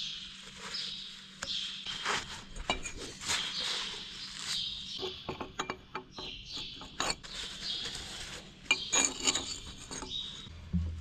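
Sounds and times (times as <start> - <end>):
metal pin scraping in bore: 4.9 - 10.5.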